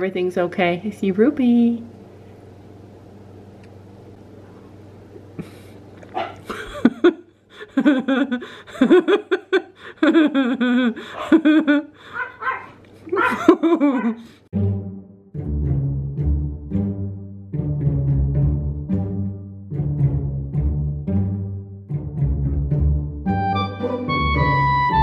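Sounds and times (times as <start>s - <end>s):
low steady hum: 0.0s - 22.1s
person laughing: 5.4s - 5.8s, 6.4s - 12.4s, 13.0s - 14.4s.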